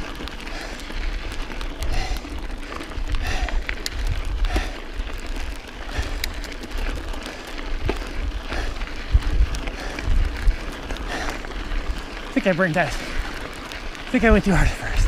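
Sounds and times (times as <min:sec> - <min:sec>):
bike rattling: 0:00.0 - 0:15.0
bike tyres crunching on gravel: 0:00.0 - 0:15.0
wind buffeting microphone: 0:00.0 - 0:15.0.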